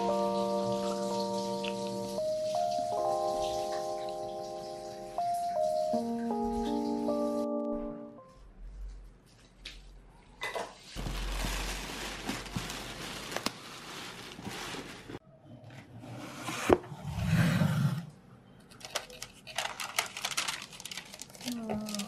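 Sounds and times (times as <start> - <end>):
plastic bag rustling: 10.8 - 15.2, 18.8 - 22.0
paper crinkling: 10.9 - 15.2, 18.7 - 22.0.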